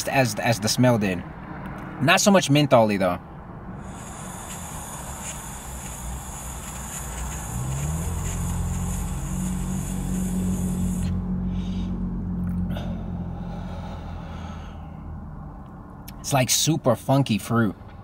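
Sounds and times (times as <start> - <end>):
airy hiss of inhale: 3.7 - 12.1, 12.7 - 15.1
exhaled breaths: 3.7 - 15.2.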